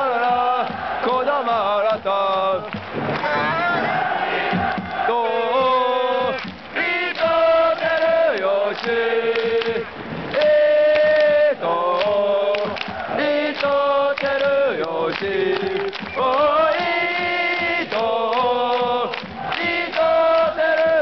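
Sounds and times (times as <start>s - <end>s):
crowd chanting in unison: 0.0s - 21.0s
sharp hits: 2.8s - 5.0s.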